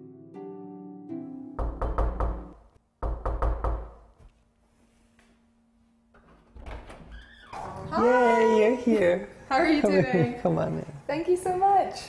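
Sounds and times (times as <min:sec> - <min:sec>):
knocking on a door: 0:01.6 - 0:04.0.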